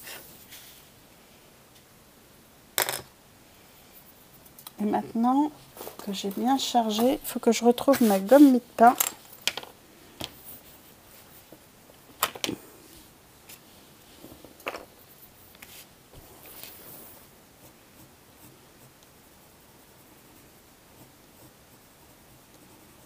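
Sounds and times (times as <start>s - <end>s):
coloured pencil on paper: 5.1s - 8.6s, 16.2s - 23.0s
eraser rubbing on paper: 7.8s - 8.6s.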